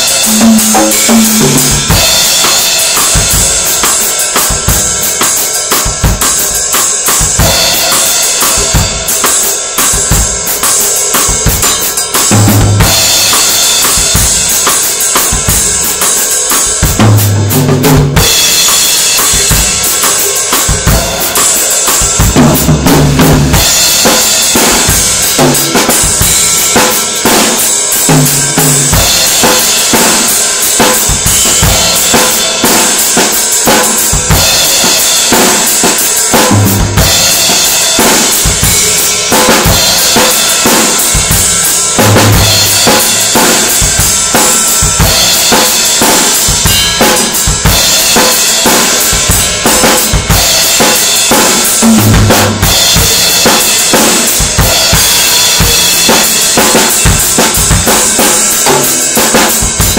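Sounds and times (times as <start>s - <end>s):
ringing cymbals: 0.0s - 11.1s
bass drum and snare beat: 0.0s - 59.9s.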